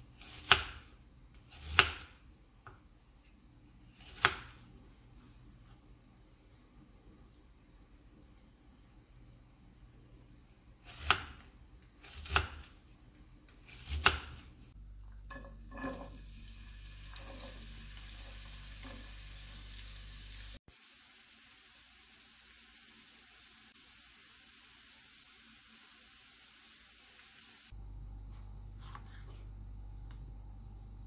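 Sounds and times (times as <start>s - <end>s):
knife chopping onion on wooden board: 0.2s - 2.8s, 4.0s - 4.6s, 10.8s - 12.8s, 13.5s - 14.5s
onion scraped into pan: 13.6s - 19.8s
onion sizzling in frying pan: 14.8s - 27.8s.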